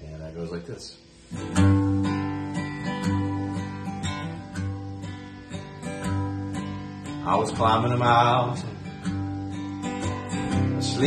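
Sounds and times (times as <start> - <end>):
acoustic guitar strumming: 1.1 - 11.0.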